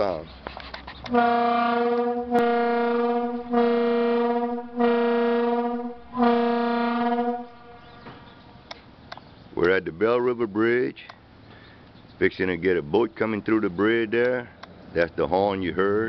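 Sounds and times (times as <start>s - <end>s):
signal horn blasts: 1.1s - 8.1s.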